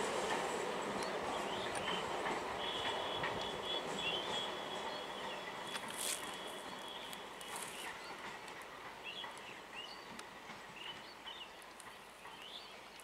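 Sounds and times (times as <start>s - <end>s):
small birds chirping: 1.0s - 13.0s.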